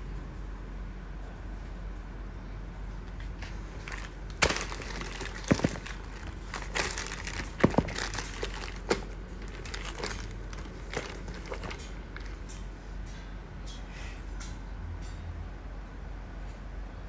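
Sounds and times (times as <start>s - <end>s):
plastic bag crinkling: 3.7s - 12.5s.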